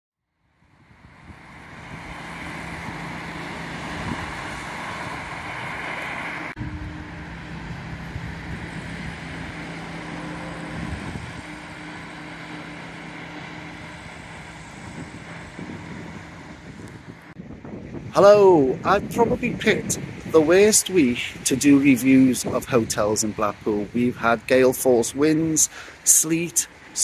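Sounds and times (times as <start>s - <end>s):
low engine hum: 0.4s - 27.0s
tyre hiss on wet road: 25.7s - 27.0s.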